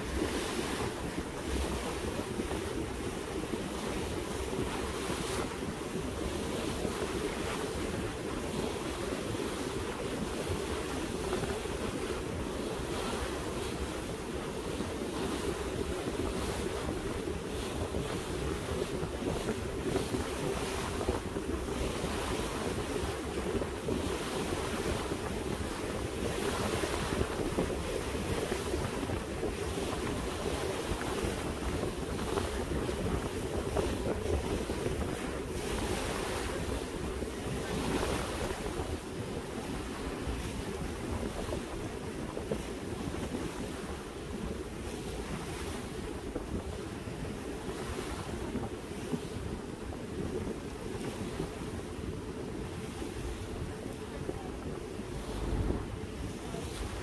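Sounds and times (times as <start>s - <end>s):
wind buffeting microphone: 0.0s - 57.0s
boat engine hum: 52.8s - 57.0s.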